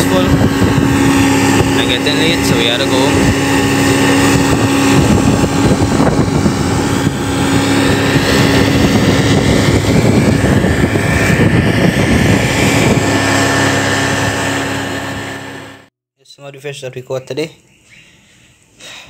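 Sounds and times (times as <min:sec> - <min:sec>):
outboard motor drone: 0:00.0 - 0:15.9
wind: 0:00.0 - 0:15.9, 0:16.6 - 0:19.0.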